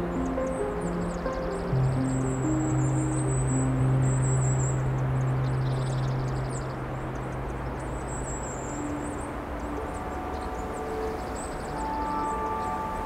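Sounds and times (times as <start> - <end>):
soft sustained musical tones: 0.0 - 13.0.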